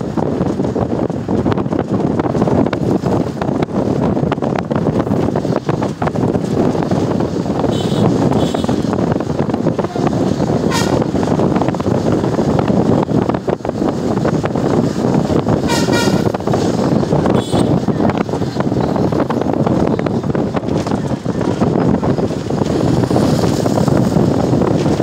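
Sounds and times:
wind and road noise: 0.0 - 25.0
vehicle horn tooting: 7.7 - 8.8, 10.7 - 11.0, 15.6 - 16.4, 17.3 - 17.8.

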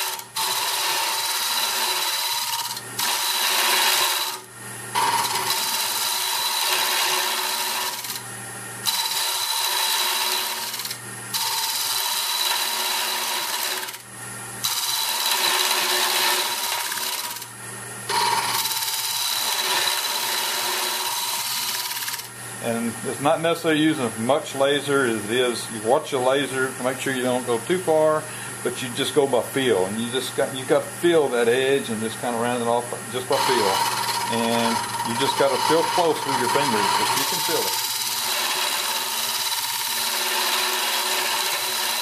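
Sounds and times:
cutter scraping wood: 0.0 - 4.4, 5.0 - 8.2, 8.8 - 14.0, 14.6 - 17.5, 18.1 - 22.8, 30.0 - 42.0
lathe humming: 0.0 - 42.0.

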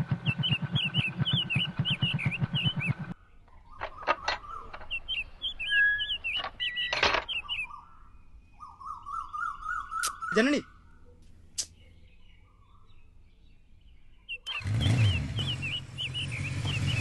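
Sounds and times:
motorcycle engine running: 0.0 - 3.2, 14.5 - 17.0
birds chirping: 0.0 - 17.0
trilling bird call: 0.1 - 13.0
sharp clicks: 10.0 - 10.3.

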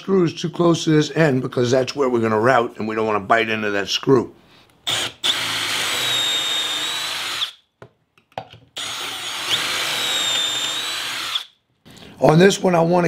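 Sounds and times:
cordless drill motor whine: 4.9 - 7.6, 8.8 - 11.5
drill bit cutting wood: 4.9 - 7.6, 8.8 - 11.5.

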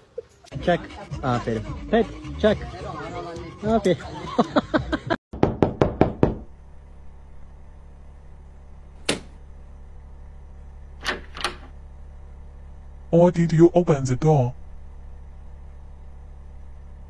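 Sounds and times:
knocking on a door: 5.3 - 6.5.

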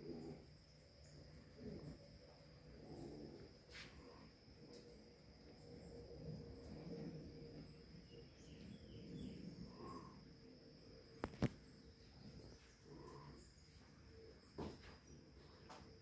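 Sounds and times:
insect trill: 0.0 - 16.0
faint bird chirps: 5.5 - 10.6.

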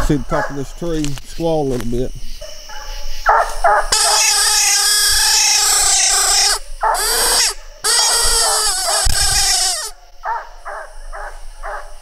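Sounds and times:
dog barking: 2.4 - 4.2, 6.8 - 7.3, 10.2 - 12.0
hound howling: 4.0 - 9.9.

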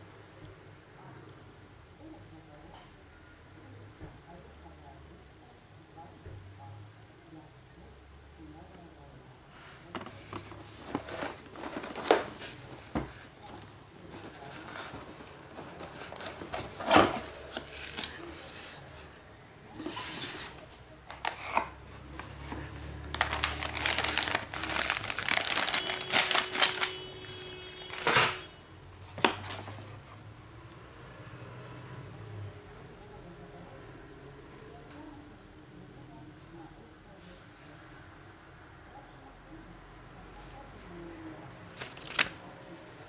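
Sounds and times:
cardboard rustling: 10.0 - 19.2, 19.8 - 28.3, 41.7 - 42.5
packaging crinkling: 14.1 - 18.5, 22.2 - 28.2.

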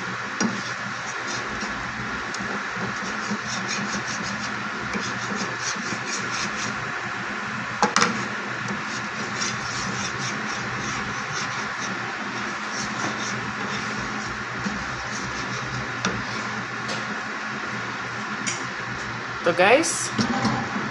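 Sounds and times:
spatula spreading in pan: 0.0 - 6.9, 8.0 - 16.8.

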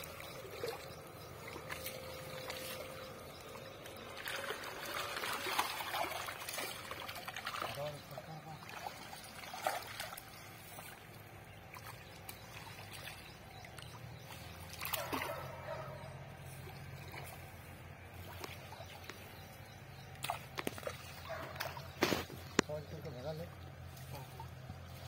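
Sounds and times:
fish thrashing in water: 0.0 - 22.7.

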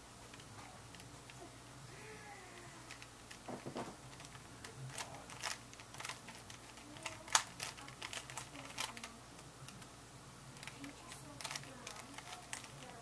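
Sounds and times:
plastic puzzle cube clicking: 2.6 - 3.5, 4.1 - 9.9, 10.6 - 13.0.

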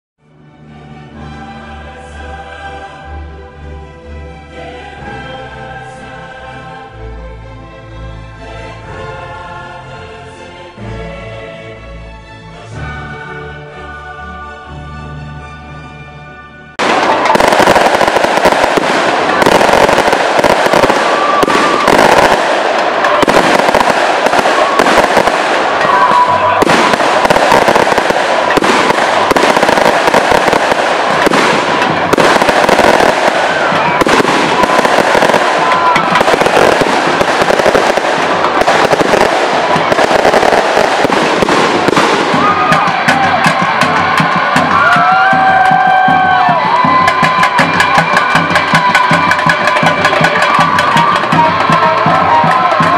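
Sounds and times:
firecrackers popping: 16.8 - 52.9.

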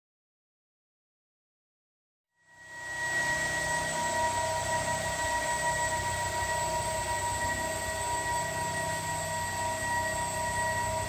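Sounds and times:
electric motors whining: 2.5 - 11.0.

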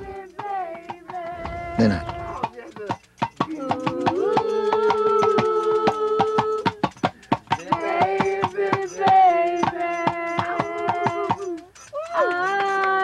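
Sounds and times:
person singing long notes: 0.0 - 2.5, 7.8 - 11.6
fast clicking beat: 0.0 - 13.0.

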